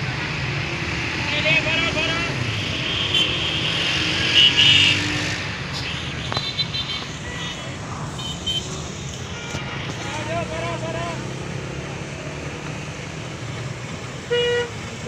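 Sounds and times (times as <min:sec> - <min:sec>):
traffic engines rumbling: 0:00.0 - 0:15.0.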